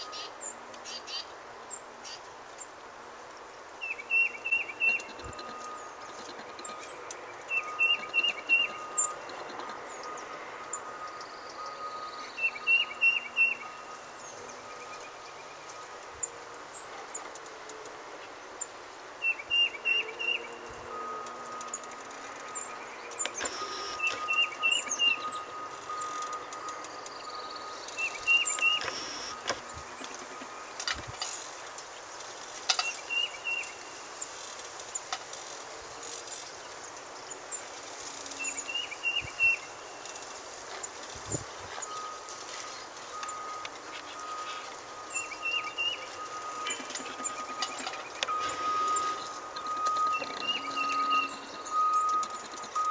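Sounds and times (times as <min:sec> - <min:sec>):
distant machinery hum: 0:00.0 - 0:52.9
songbird singing: 0:00.0 - 0:52.9
high bird chirps: 0:03.8 - 0:15.8, 0:22.5 - 0:30.7, 0:38.3 - 0:52.9.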